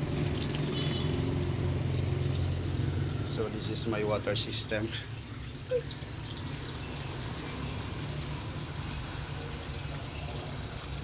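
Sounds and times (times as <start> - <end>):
water pouring from hose: 0.0 - 11.0.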